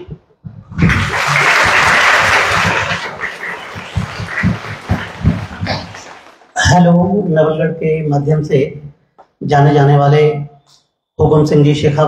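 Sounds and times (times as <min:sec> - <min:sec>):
crowd applauding: 0:00.8 - 0:06.6.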